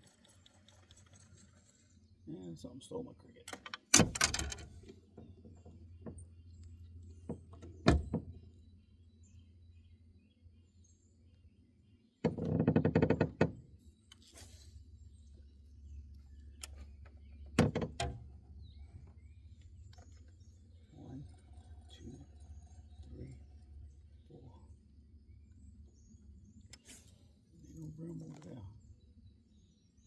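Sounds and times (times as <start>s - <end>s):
low steady hum: 13.6s - 30.0s.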